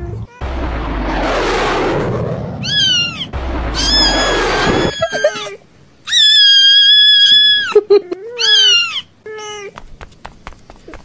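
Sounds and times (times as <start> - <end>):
rushing noise with low rumble: 0.0 - 5.2
high-pitched cat wail: 2.6 - 7.7, 8.4 - 9.7.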